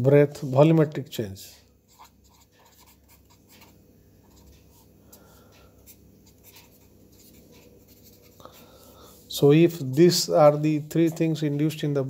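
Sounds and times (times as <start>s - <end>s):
pen scratching on paper: 6.2s - 8.4s.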